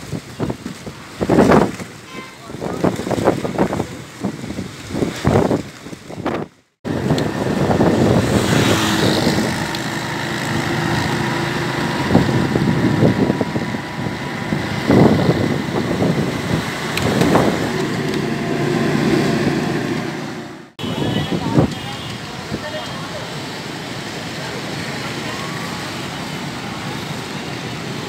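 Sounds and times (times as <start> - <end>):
rushing noise: 6.3 - 28.0
motorcycle engine running: 6.9 - 18.7.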